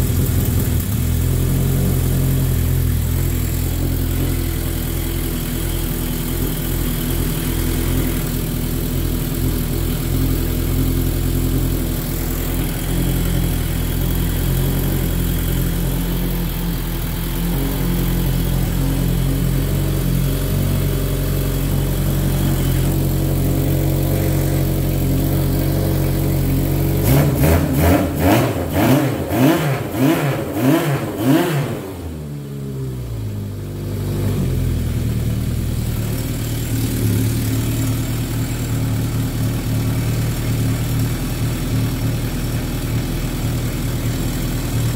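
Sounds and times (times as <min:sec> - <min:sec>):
motorcycle engine idling: 0:00.0 - 0:28.7, 0:32.0 - 0:44.9
engine revving with throttle blips: 0:00.0 - 0:35.5.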